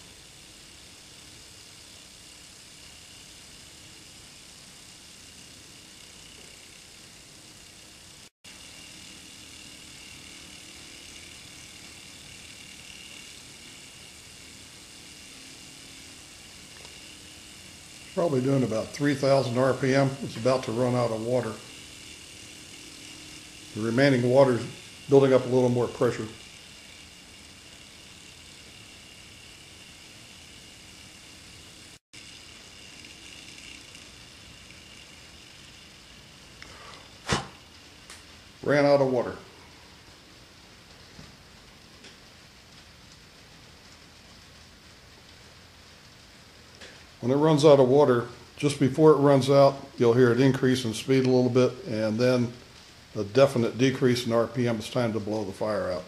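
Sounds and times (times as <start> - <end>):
steam engine whir and whine: 0.0 - 40.7.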